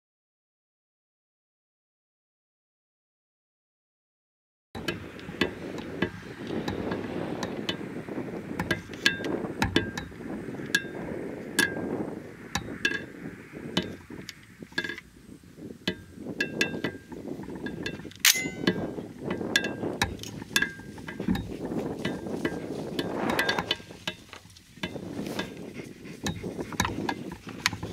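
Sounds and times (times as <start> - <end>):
light metallic clicks and clinks: 15.9 - 25.7.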